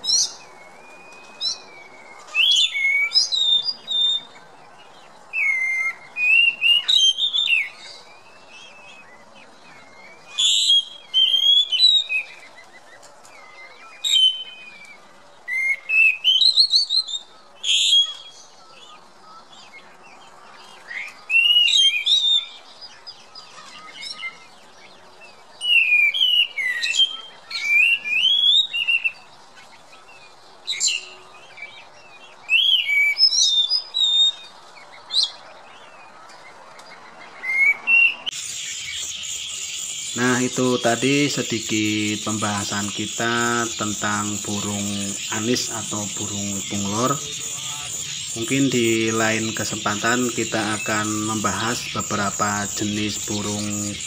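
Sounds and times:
thrush singing: 0:38.3 - 0:54.0.

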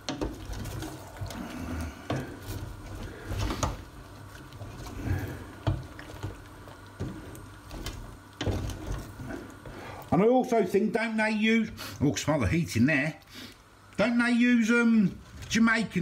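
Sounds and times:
wooden spoon scraping a pot: 0:00.0 - 0:10.1.

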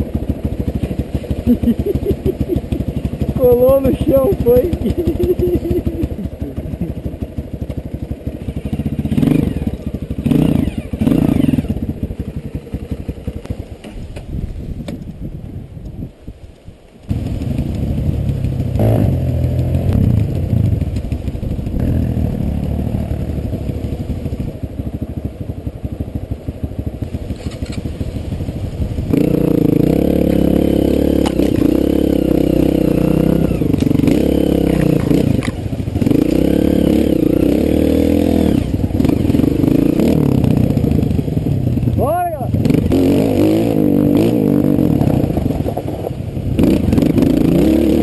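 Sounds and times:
motorcycle engine revving: 0:00.0 - 0:15.1, 0:17.0 - 0:48.0.

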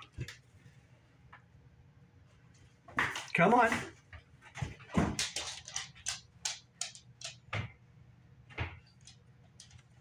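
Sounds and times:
dog claws clicking on wood floor: 0:04.6 - 0:07.8, 0:08.6 - 0:10.0.

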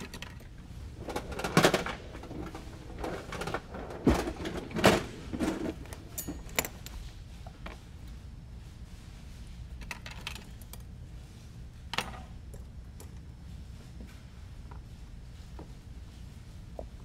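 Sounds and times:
rummaging through small hard parts: 0:00.0 - 0:07.9, 0:09.6 - 0:11.0.

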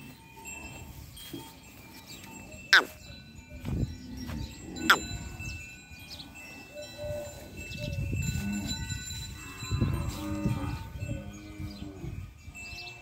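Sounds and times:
cattle bells ringing: 0:00.0 - 0:13.0
cattle low calls: 0:02.7 - 0:03.1, 0:04.2 - 0:05.4.

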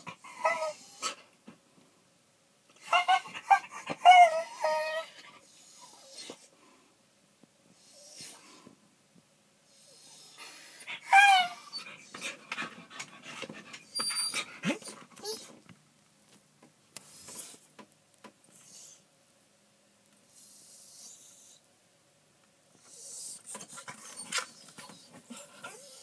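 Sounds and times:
dog whining: 0:00.0 - 0:01.2, 0:02.8 - 0:06.5, 0:09.7 - 0:12.4, 0:13.6 - 0:15.6, 0:22.8 - 0:26.0.

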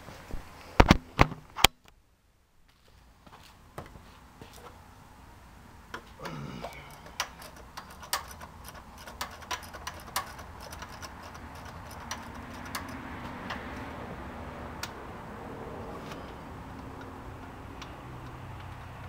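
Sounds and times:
faint steady hum: 0:00.0 - 0:19.0
socket wrench ratchet clicking: 0:06.7 - 0:13.8.

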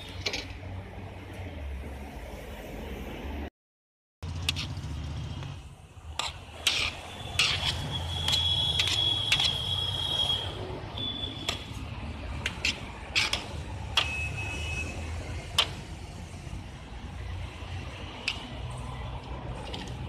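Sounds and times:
low rumble of street traffic: 0:00.0 - 0:03.5, 0:04.2 - 0:20.0.

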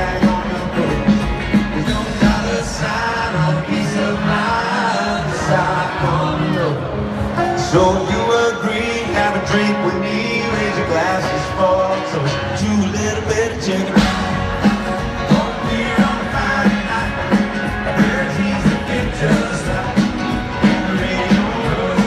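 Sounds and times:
steady drum beat: 0:00.0 - 0:04.7, 0:13.7 - 0:22.0
acoustic guitar: 0:00.0 - 0:22.0
bass guitar: 0:00.0 - 0:22.0
man singing: 0:00.0 - 0:22.0.

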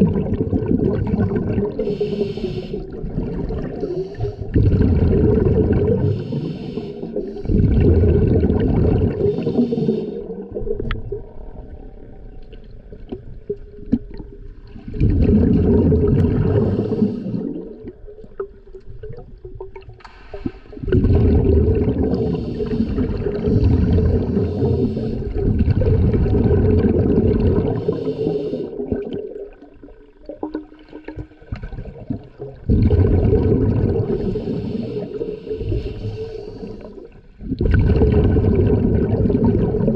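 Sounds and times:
exhaled bubbles underwater: 0:00.0 - 0:39.9
diver breathing through regulator: 0:01.0 - 0:03.1, 0:03.8 - 0:04.8, 0:05.8 - 0:08.0, 0:09.1 - 0:10.6, 0:16.4 - 0:17.8, 0:20.0 - 0:25.6, 0:27.5 - 0:28.9, 0:33.9 - 0:37.2.

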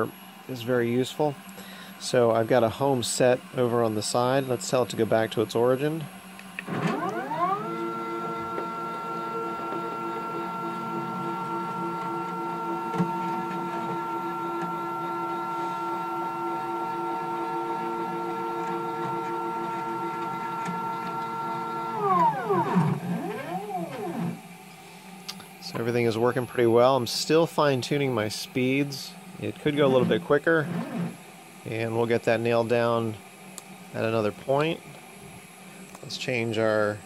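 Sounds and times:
stepper motors whining: 0:06.6 - 0:24.6.

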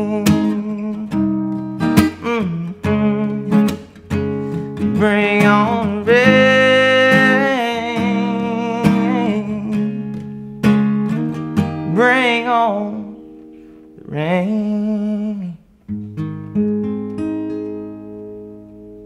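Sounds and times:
man singing wordless notes: 0:00.0 - 0:01.4, 0:02.1 - 0:03.8, 0:04.8 - 0:10.1, 0:11.9 - 0:13.3, 0:14.0 - 0:15.7
acoustic guitar strummed and picked: 0:00.0 - 0:19.0.

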